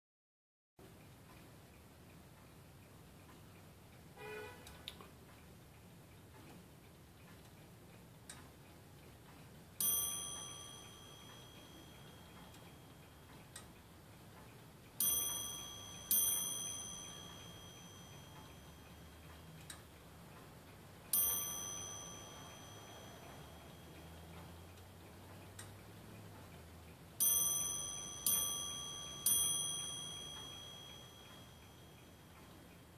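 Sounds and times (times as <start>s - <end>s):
clock ticking: 0.8s - 32.9s
clock bell striking: 9.8s - 13.3s, 15.0s - 19.3s, 21.1s - 24.7s, 27.2s - 32.8s.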